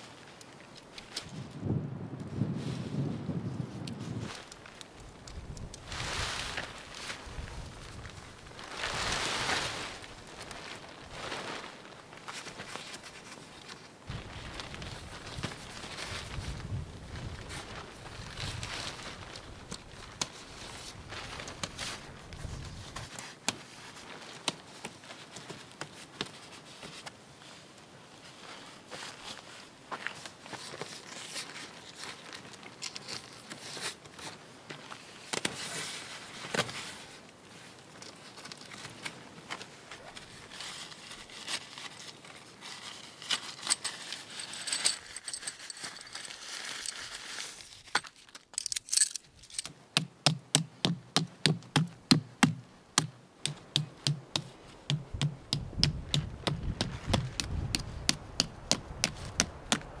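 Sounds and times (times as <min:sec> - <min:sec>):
tent rustling: 0:00.0 - 1:00.0
rock striking tent stake: 0:50.0 - 0:59.9.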